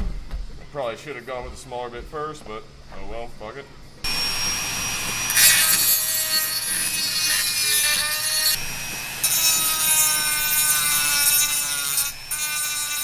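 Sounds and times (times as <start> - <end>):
rotary tool motor whine: 4.1 - 13.0
stone grinding metal: 4.8 - 13.0.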